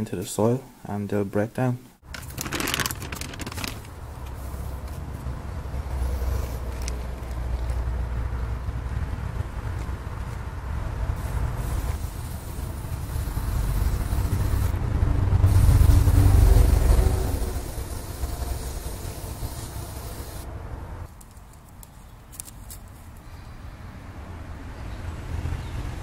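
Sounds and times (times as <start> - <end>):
low rumble: 13.2 - 18.7.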